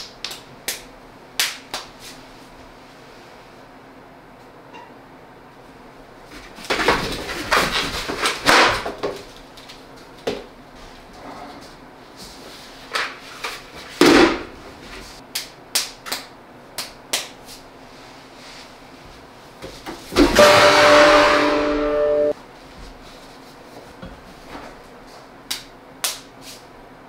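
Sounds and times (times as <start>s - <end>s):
foam sword hitting: 20.2s - 22.4s
pitched tone: 20.4s - 22.4s.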